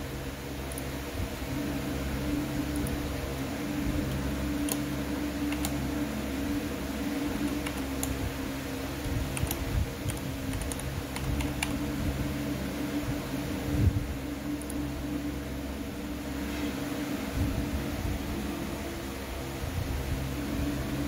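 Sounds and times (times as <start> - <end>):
steady background hum: 0.0 - 21.0
keyboard keys clicking: 2.6 - 3.1, 4.0 - 6.1, 7.1 - 8.3, 8.9 - 12.1.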